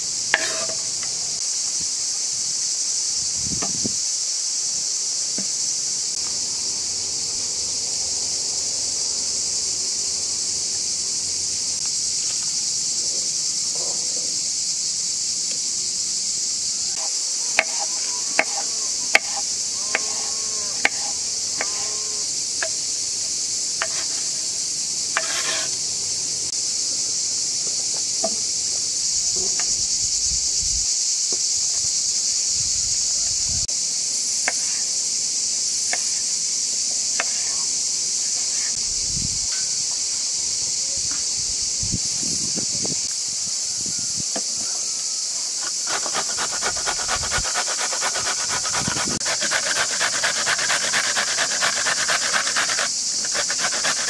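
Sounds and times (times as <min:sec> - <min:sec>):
insect chirring: 0:00.0 - 0:54.0
knife chopping on wooden board: 0:00.4 - 0:00.8, 0:19.2 - 0:20.1.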